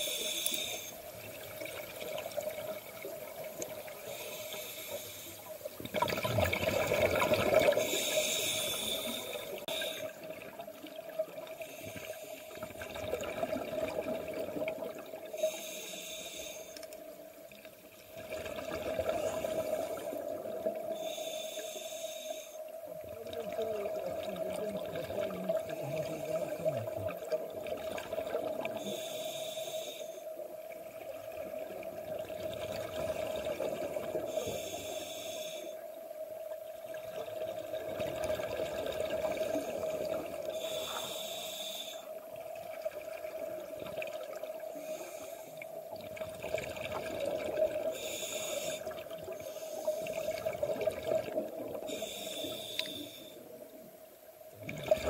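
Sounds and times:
exhaled bubbles underwater: 5.4s - 11.8s, 12.4s - 15.4s, 18.0s - 21.1s, 22.8s - 29.1s, 30.6s - 34.8s, 36.3s - 41.2s, 42.2s - 45.0s, 45.8s - 53.8s, 54.4s - 55.0s.

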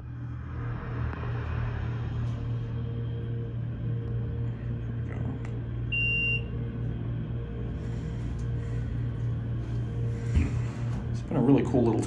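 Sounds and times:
elevator car humming: 0.0s - 12.0s
electronic beep: 5.9s - 6.5s.

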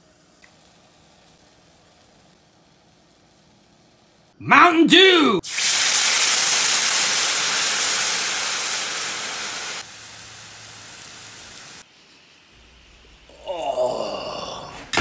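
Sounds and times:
liquid sizzling in hot skillet: 0.0s - 3.8s, 5.4s - 13.2s
bubbling hiss: 5.4s - 14.6s.

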